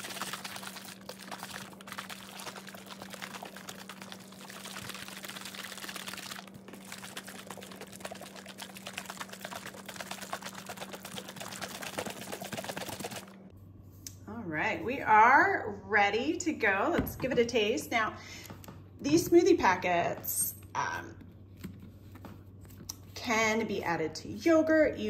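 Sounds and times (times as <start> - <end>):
liquid sloshing in shaker bottle: 0.0 - 13.4
steady low hum: 0.0 - 25.0.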